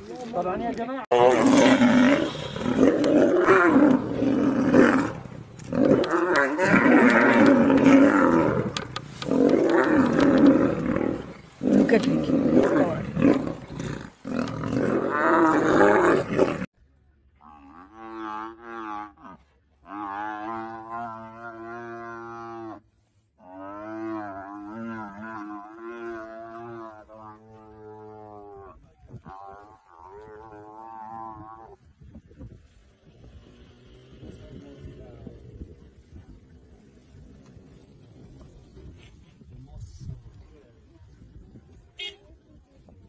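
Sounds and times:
lions roaring and snarling: 1.1 - 16.7
young buffalo bawling: 1.1 - 16.7.

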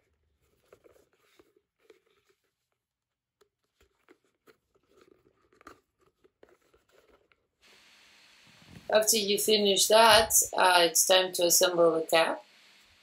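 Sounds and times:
leather rustling and clicking: 0.0 - 7.5
thread drawn through leather: 0.0 - 7.5.

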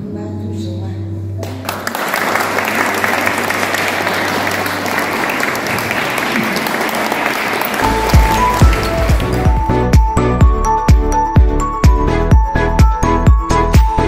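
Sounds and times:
crowd applauding: 1.4 - 9.9.

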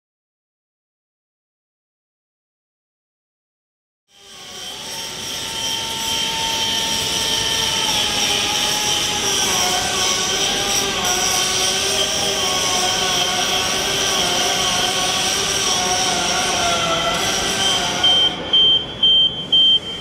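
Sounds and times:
whining machinery tones: 4.1 - 20.0.

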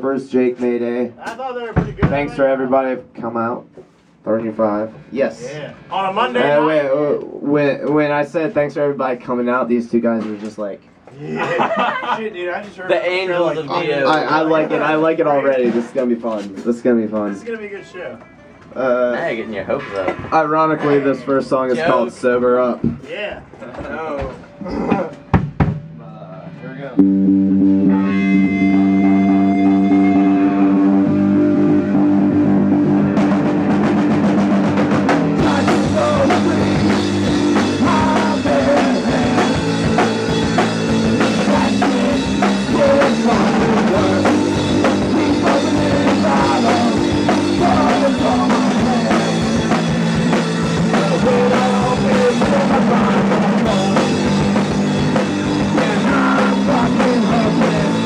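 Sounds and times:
drums: 0.0 - 58.0
rock band playing: 16.6 - 23.3, 23.9 - 58.0
electric guitar chords: 25.1 - 58.0.

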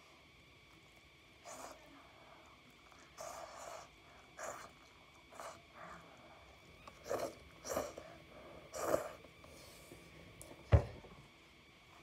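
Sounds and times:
slurping noodles: 6.9 - 9.3.

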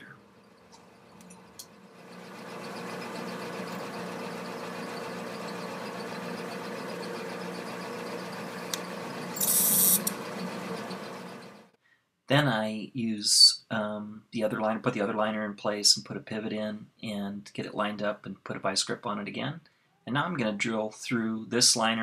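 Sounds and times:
drill press motor humming: 0.0 - 11.8
harsh high-pitched drilling: 9.3 - 10.2.

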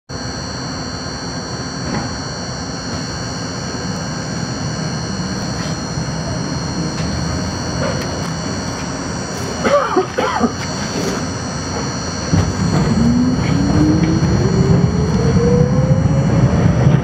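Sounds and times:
constant high whine: 0.1 - 17.0.

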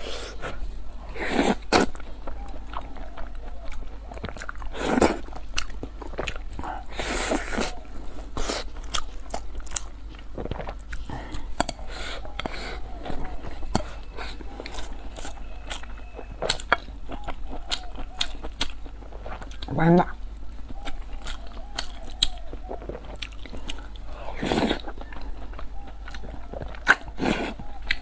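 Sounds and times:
person chewing food: 0.0 - 28.0.

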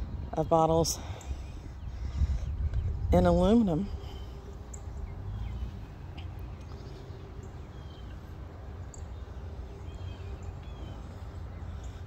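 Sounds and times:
birds chirping: 0.0 - 12.0
faint constant hum: 0.0 - 12.0
low outdoor rumble: 0.0 - 12.0.

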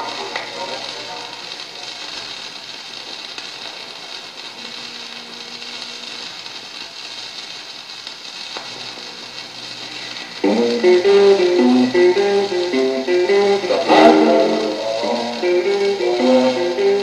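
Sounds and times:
faint record click: 0.0 - 7.0
record surface hiss and crackle: 0.0 - 17.0
guitar music: 9.9 - 17.0.

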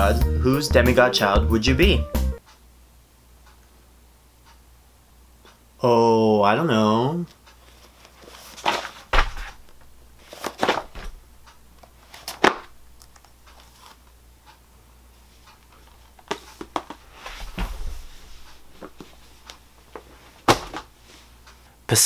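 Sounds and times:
book pages rustling: 7.6 - 11.2, 11.8 - 14.1, 15.2 - 21.3.

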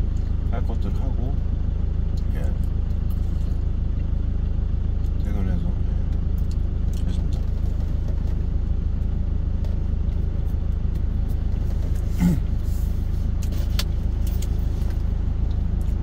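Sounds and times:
truck engine idling: 0.0 - 16.0.

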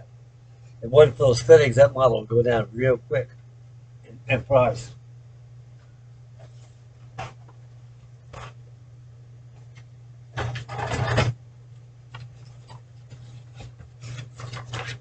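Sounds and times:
paper rustling and scraping: 6.4 - 7.6, 8.3 - 8.6, 12.1 - 15.0.

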